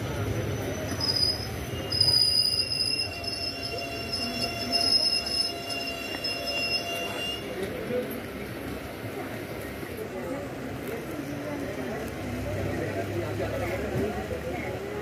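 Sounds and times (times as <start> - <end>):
train wheels squealing on rails: 0.0 - 8.3
low train rumble: 0.0 - 15.0.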